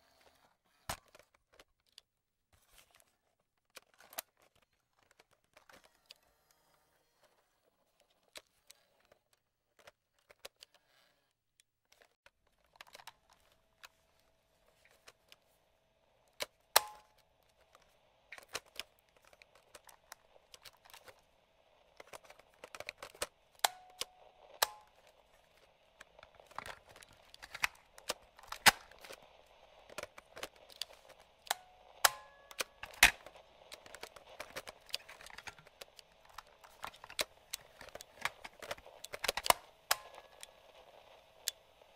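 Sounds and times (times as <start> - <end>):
faint steady hiss: 12.7 - 41.9
plastic switches clicking: 16.4 - 17.2, 22.0 - 25.1, 29.9 - 40.5.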